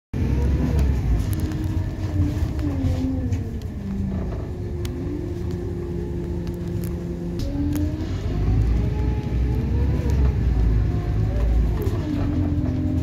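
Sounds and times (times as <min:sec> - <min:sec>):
diesel engine low rumble: 0:00.1 - 0:13.0
gearbox whine: 0:00.2 - 0:13.0
light cabin rattles: 0:10.2 - 0:13.0.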